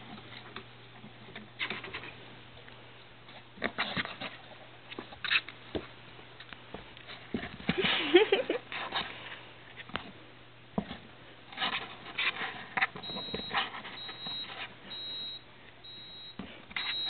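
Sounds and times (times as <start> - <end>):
faint high beep: 13.0 - 17.0.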